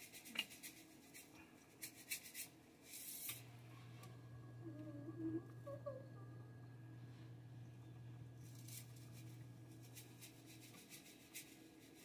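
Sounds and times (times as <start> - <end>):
low hum: 3.4 - 10.8
hands rustling on parchment paper: 8.4 - 12.0.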